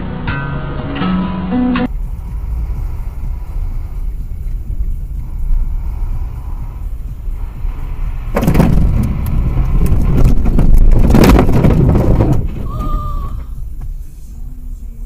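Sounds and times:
road vehicle rumble: 0.0s - 15.0s
short beep: 1.5s - 1.9s.

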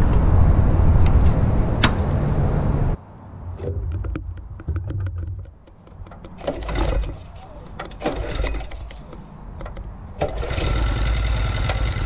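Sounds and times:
clicks and knocks of engine controls: 3.6s - 12.0s.

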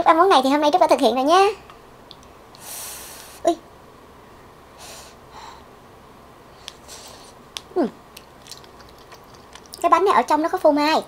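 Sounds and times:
soft puffs of breath: 2.6s - 3.5s, 4.8s - 5.7s, 6.5s - 7.4s
small mouth clicks: 6.6s - 9.8s.

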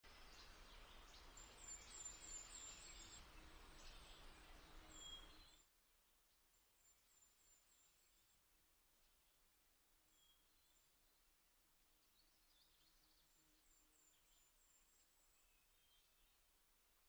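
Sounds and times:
background hiss: 0.0s - 5.6s
small birds chirping: 0.0s - 16.6s.

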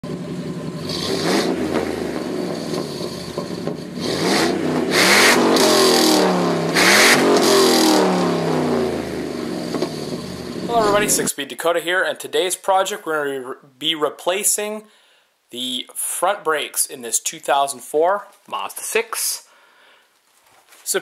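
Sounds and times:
car engine revving: 0.1s - 11.3s.

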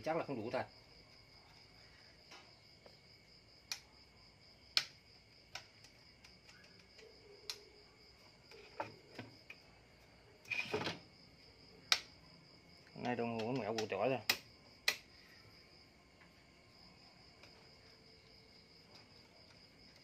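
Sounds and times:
high-pitched cricket trill: 0.0s - 20.0s
sharp clicks and light knocks: 4.7s - 7.7s, 12.8s - 15.1s.

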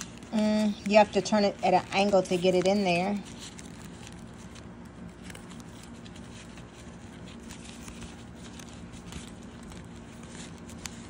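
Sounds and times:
card rustling against fabric: 0.0s - 11.0s.

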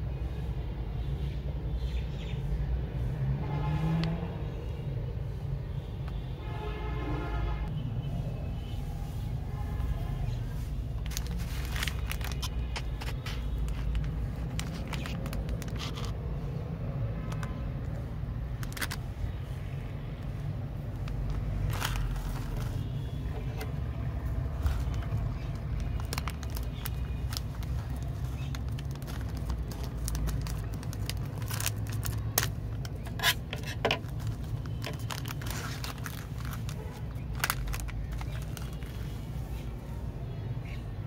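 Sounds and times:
plastic packet crinkling: 10.9s - 16.2s, 17.2s - 19.3s, 20.2s - 39.3s.

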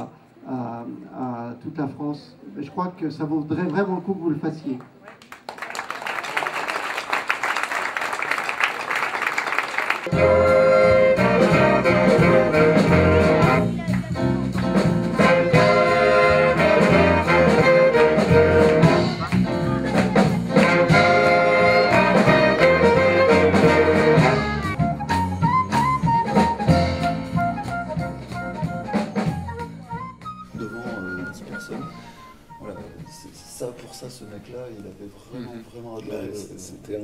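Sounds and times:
applause: 4.8s - 10.1s
jazz band playing: 10.0s - 34.8s.

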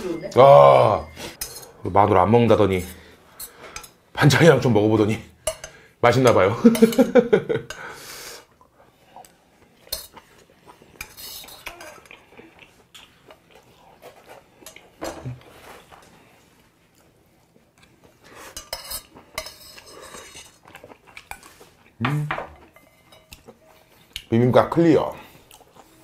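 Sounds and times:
metal spoon scraping brass bowl: 1.3s - 1.8s, 18.5s - 20.6s.

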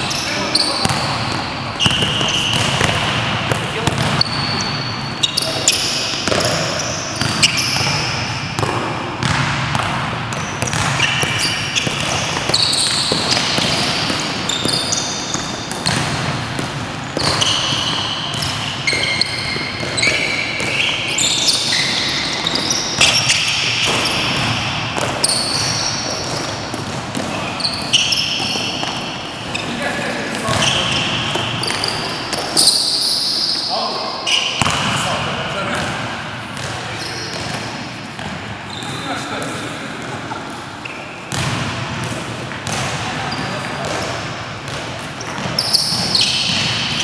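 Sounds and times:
sneakers squeaking on floor: 0.0s - 47.0s
basketball bouncing: 0.8s - 29.6s, 34.6s - 35.0s, 35.7s - 39.0s, 41.3s - 47.0s.

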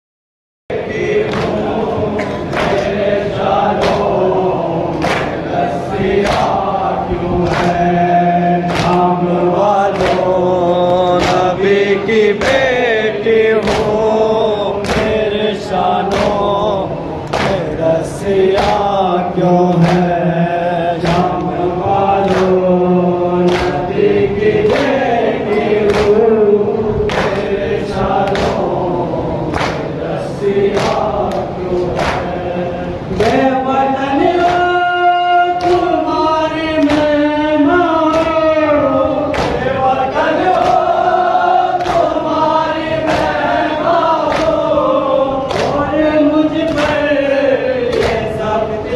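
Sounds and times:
men chanting a lament: 0.7s - 48.9s
hands slapping on chests: 4.9s - 5.4s, 8.7s - 9.1s, 13.6s - 14.0s, 16.1s - 16.4s, 28.2s - 28.7s, 29.5s - 29.9s, 30.7s - 32.3s, 39.3s - 39.7s, 41.8s - 42.2s, 44.2s - 44.6s.

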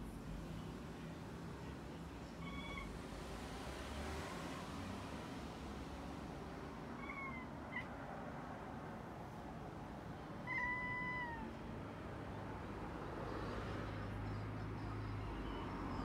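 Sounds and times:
cat chirping meows: 2.4s - 3.0s, 6.9s - 7.9s, 10.4s - 11.6s.

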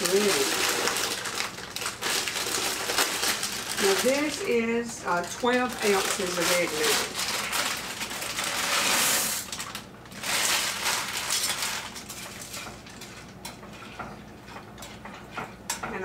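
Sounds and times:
plastic bag crinkling: 0.0s - 13.0s
utensil stirring in pot: 10.2s - 16.0s.

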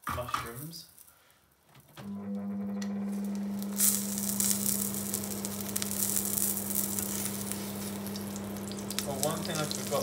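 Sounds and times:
steady low hum: 2.7s - 10.0s
mushrooms sizzling in a frying pan: 3.1s - 10.0s.

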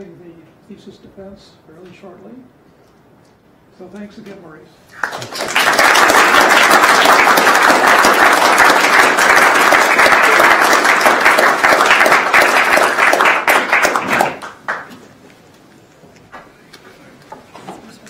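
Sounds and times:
audience applauding: 4.9s - 15.0s.

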